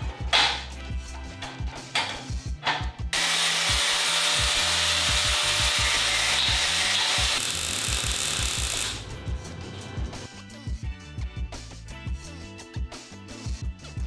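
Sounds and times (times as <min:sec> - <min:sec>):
background music with a beat: 0:00.0 - 0:03.8, 0:07.3 - 0:14.0
angle grinder cutting steel: 0:03.2 - 0:09.0.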